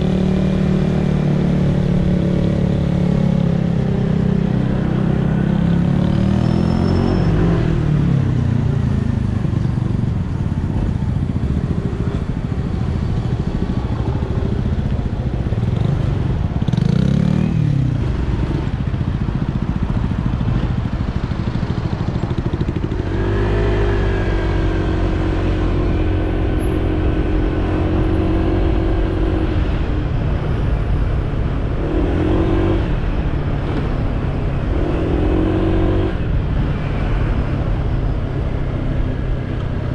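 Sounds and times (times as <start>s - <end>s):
scooter engine: 8.1s - 28.5s.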